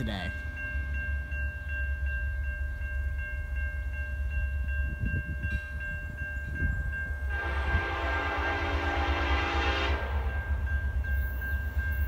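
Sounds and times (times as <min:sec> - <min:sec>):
crossing warning bell ringing: 0:00.0 - 0:12.0
train horn: 0:07.3 - 0:10.5.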